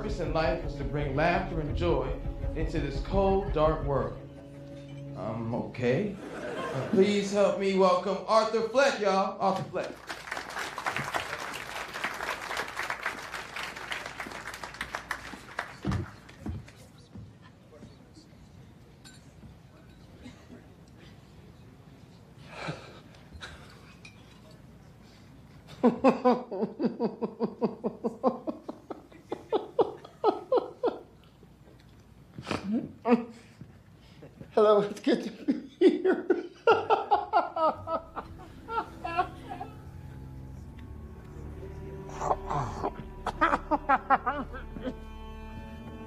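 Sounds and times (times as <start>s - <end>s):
audience applauding: 9.8s - 16.8s
man laughing: 25.7s - 31.2s, 35.3s - 39.8s, 42.2s - 45.1s.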